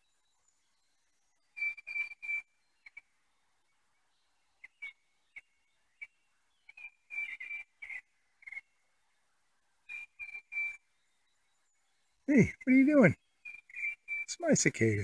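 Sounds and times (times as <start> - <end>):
bird chirping: 4.0 - 9.2, 9.8 - 15.0.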